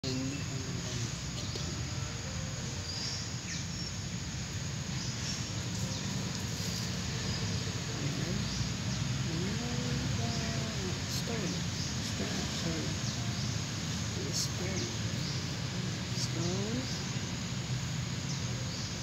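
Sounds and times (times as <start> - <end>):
background hiss: 0.0 - 19.0
steady low hum: 0.0 - 19.0.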